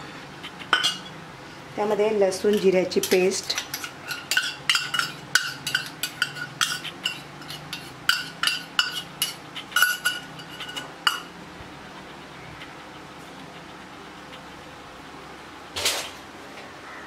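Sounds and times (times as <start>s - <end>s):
spoon clinking on metal bowl: 2.5s - 11.3s.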